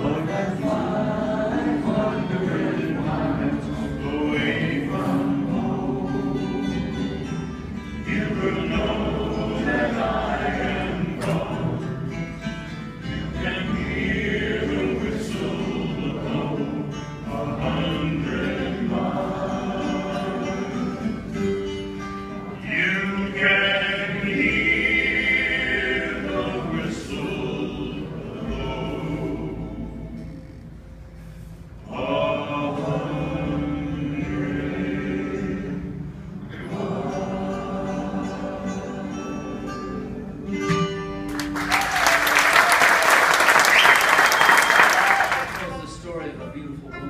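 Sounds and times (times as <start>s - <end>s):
men singing in harmony: 0.0s - 7.2s, 8.0s - 12.2s, 13.1s - 21.3s, 22.6s - 30.5s, 31.8s - 40.9s
bass guitar: 0.0s - 31.9s, 32.8s - 42.0s
strummed acoustic guitars: 0.0s - 41.7s.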